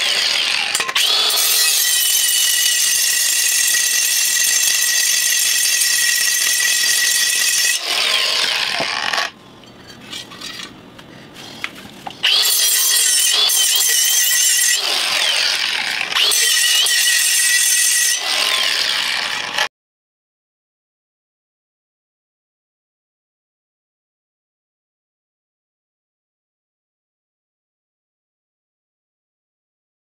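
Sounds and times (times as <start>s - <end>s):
angle grinder grinding metal: 0.0s - 10.7s, 12.2s - 19.7s.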